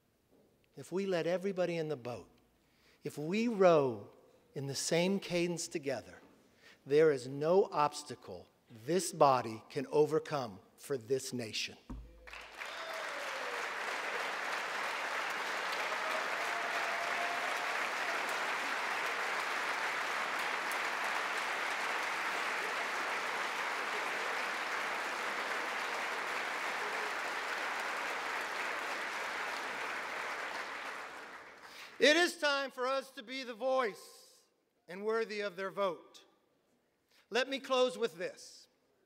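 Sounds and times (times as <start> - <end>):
large crowd applauding: 12.0 - 32.1.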